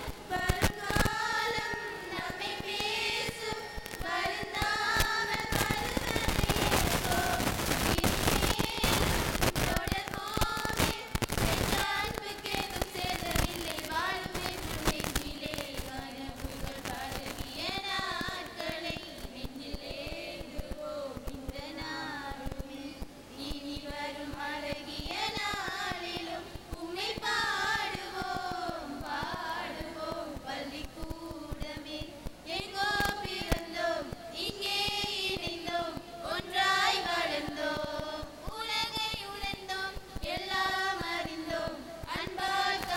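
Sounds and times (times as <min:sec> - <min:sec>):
heavy crackling clicks: 0:00.0 - 0:22.7, 0:23.5 - 0:42.9
women singing unaccompanied: 0:00.0 - 0:42.9.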